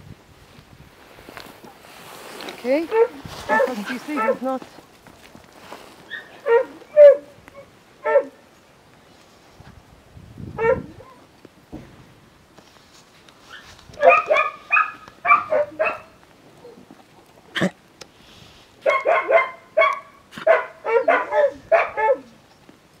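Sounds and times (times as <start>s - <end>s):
dog barking: 2.9s - 4.4s, 6.1s - 7.3s, 8.0s - 8.4s, 10.6s - 11.2s, 14.0s - 16.2s, 18.8s - 22.4s.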